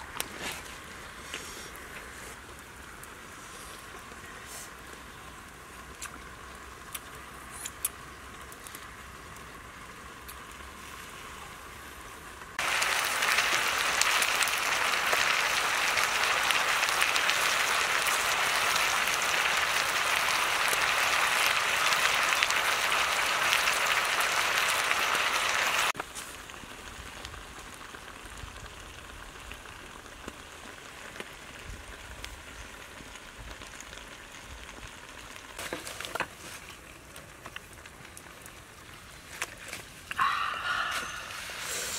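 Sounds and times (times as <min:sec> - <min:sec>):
cabbage sizzling in a wok: 0:12.6 - 0:37.1, 0:40.2 - 0:41.9.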